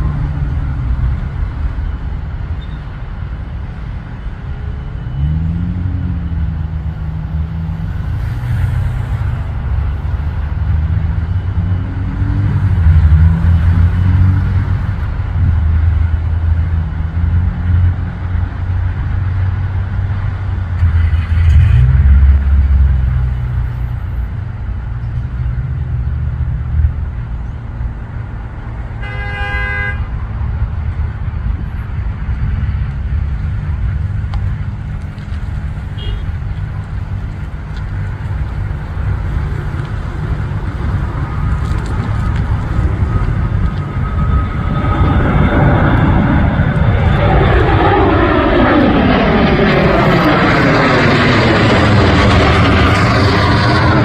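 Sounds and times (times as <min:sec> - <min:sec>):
jet engines passing overhead: 0:00.0 - 0:54.0
road traffic rumble: 0:00.0 - 0:54.0
vehicle horn toot: 0:29.0 - 0:30.1, 0:36.0 - 0:36.4.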